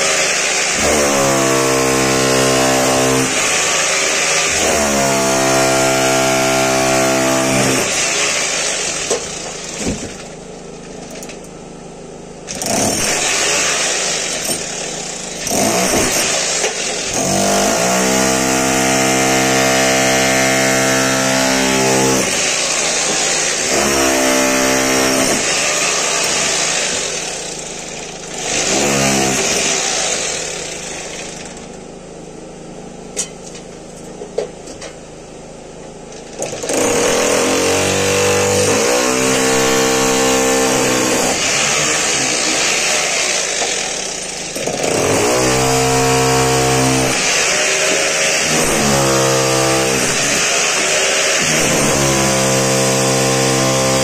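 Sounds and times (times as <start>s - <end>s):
rotary hammer chiselling masonry: 0.0s - 10.0s, 12.5s - 27.2s, 36.4s - 54.0s.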